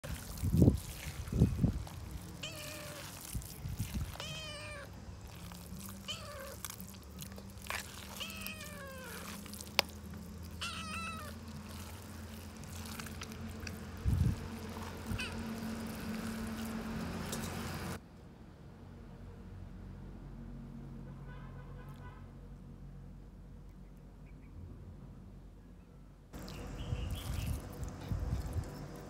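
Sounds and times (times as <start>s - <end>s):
kitten meowing: 2.4s - 3.2s, 3.9s - 4.9s, 6.0s - 6.7s, 7.8s - 9.5s, 10.5s - 11.4s, 15.0s - 15.7s.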